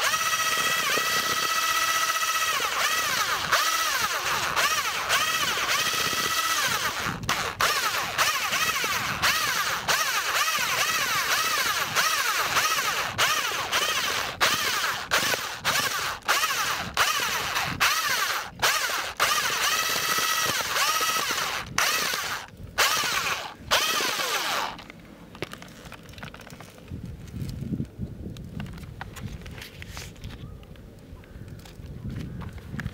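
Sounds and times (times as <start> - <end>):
power drill motor whine: 0.0 - 24.9.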